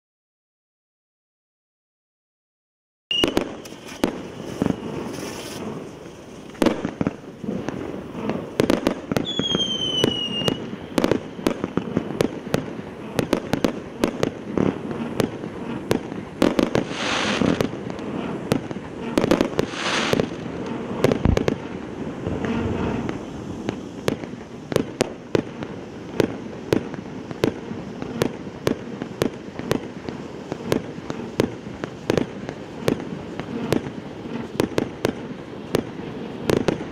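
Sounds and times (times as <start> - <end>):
falling whistle: 3.1 - 3.4, 9.2 - 10.7
fountain fireworks hissing and popping: 3.1 - 36.9.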